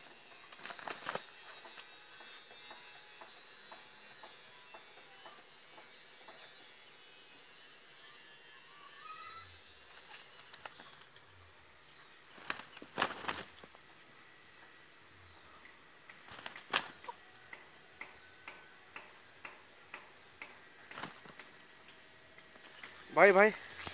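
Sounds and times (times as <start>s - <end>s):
distant bird calls: 0.0s - 23.9s.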